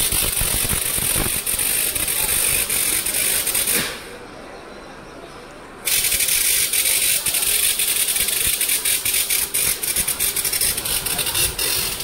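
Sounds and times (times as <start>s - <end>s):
train clicks and rattles: 0.0s - 4.0s, 5.9s - 12.0s
electric train passing: 5.9s - 12.0s.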